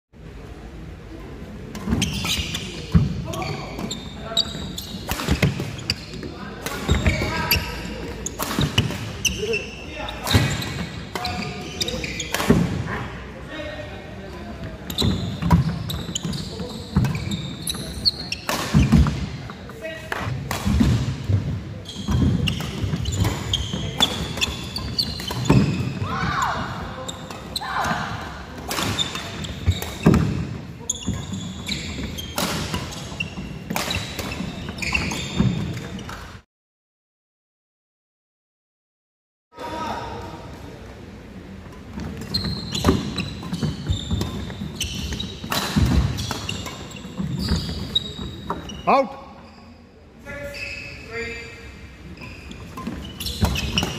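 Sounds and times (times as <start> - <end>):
shoes squeaking on court: 1.6 - 12.8, 14.2 - 36.4, 41.3 - 53.9
rackets hitting shuttlecock: 5.0 - 7.7, 8.3 - 9.5, 12.2 - 12.8, 18.4 - 19.2, 20.1 - 21.2, 22.0 - 26.0, 27.2 - 30.5, 32.3 - 33.0, 33.7 - 36.2, 42.0 - 47.9.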